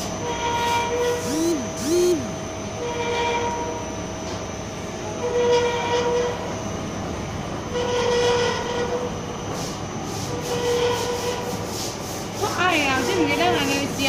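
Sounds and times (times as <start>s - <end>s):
machine squeal: 0.4s - 3.1s.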